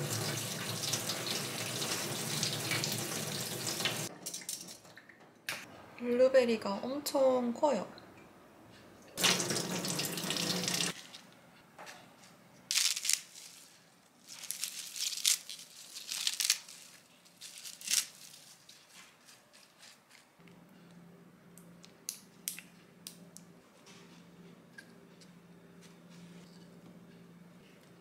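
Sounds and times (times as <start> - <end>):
faucet running: 0.0 - 4.1, 9.2 - 11.0
lettuce leaves tearing: 12.7 - 20.3.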